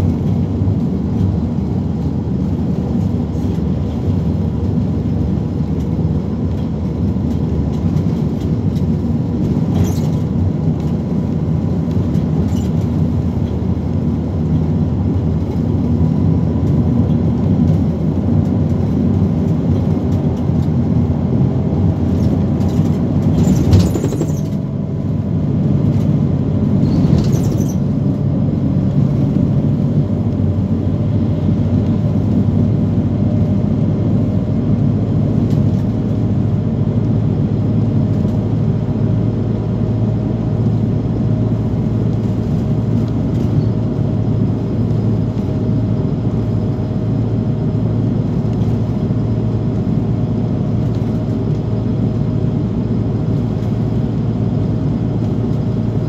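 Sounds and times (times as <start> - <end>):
bus engine and tyre rumble: 0.0 - 56.0.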